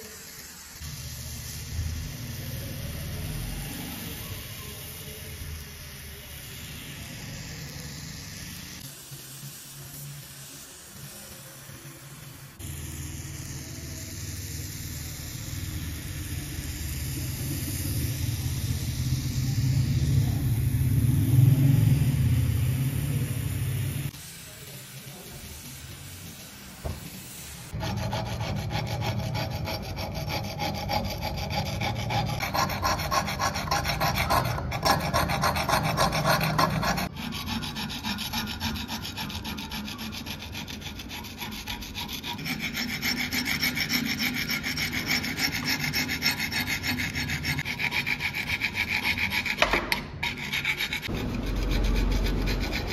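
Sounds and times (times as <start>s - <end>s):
rapid rasping strokes: 27.4s - 52.9s.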